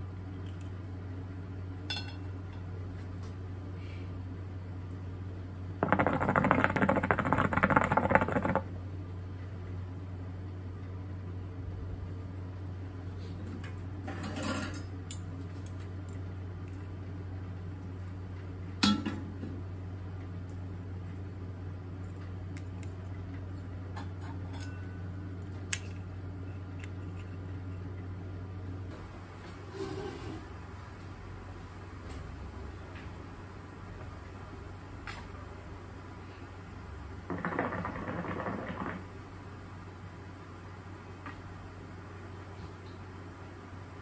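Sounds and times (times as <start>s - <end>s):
steady low hum: 0.0s - 44.0s
hookah water bubbling: 5.8s - 8.8s, 37.3s - 39.2s.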